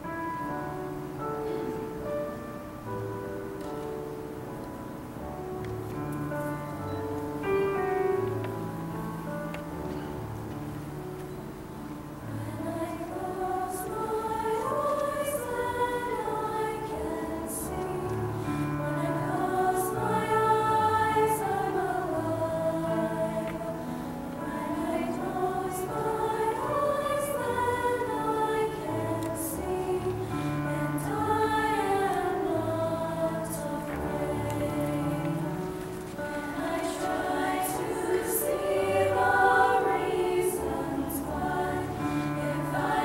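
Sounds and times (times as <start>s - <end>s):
female choir singing in harmony: 0.0s - 43.0s.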